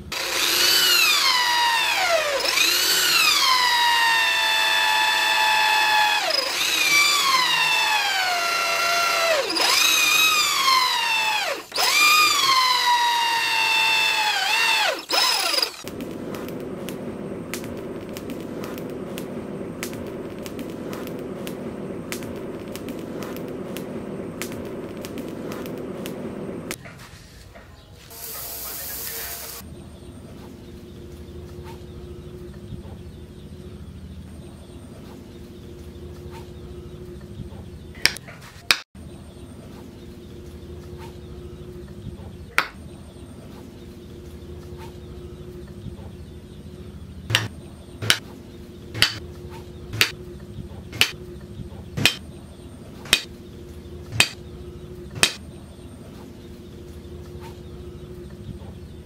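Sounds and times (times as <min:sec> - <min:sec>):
hot metal hissing into wood: 0:28.1 - 0:29.6.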